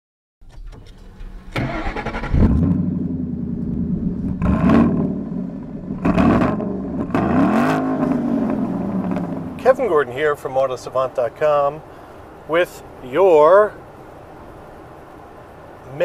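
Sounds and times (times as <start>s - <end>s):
car engine starting and revving: 0.4s - 9.8s.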